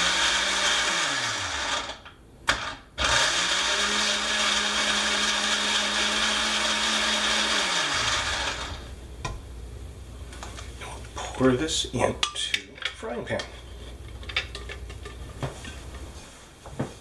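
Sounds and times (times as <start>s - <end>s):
blender blending liquid: 0.0s - 8.9s.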